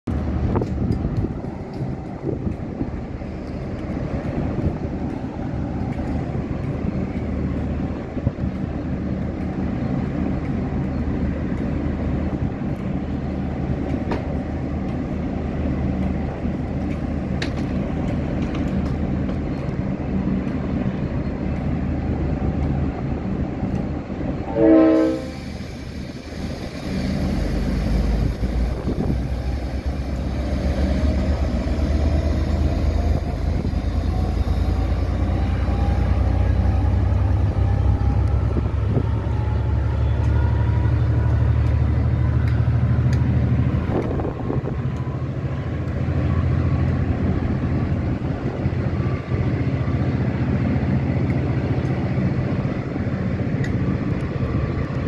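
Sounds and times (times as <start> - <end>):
carriages rumbling on rails: 0.0 - 55.0
diesel locomotive engine: 0.0 - 55.0
train horn toot: 24.4 - 25.8
rising engine whine: 26.8 - 55.0.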